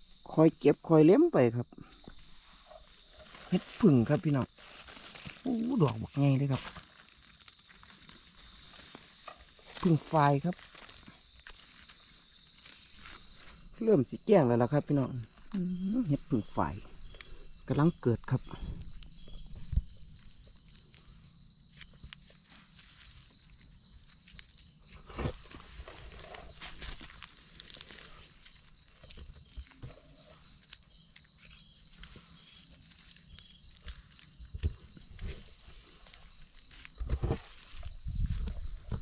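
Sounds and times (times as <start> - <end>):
high insect trill: 0.0 - 39.0
dry leaves rustling and crunching: 3.0 - 13.8, 18.8 - 39.0.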